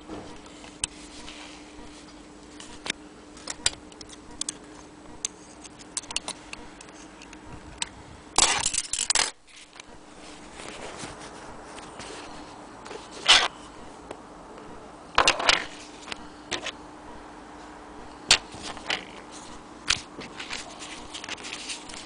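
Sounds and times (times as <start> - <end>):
denim rustling near microphone: 9.5 - 13.6.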